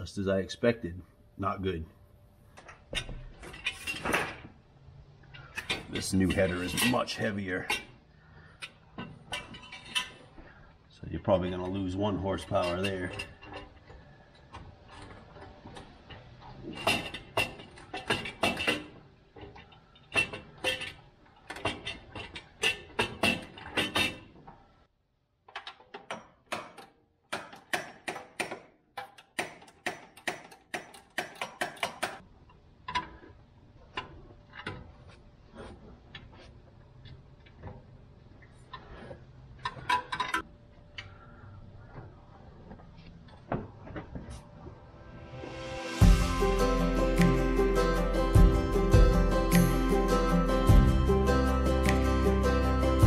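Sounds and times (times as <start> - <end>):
metal clanks and knocks: 2.6 - 4.6, 5.3 - 10.5, 11.3 - 24.6, 25.5 - 32.2, 38.6 - 40.5.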